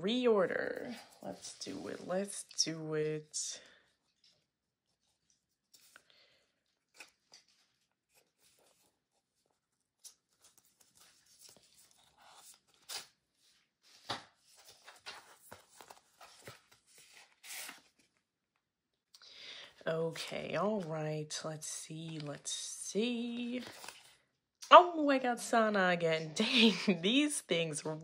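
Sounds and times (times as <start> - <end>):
paper rustling: 4.0 - 18.2, 22.0 - 24.2.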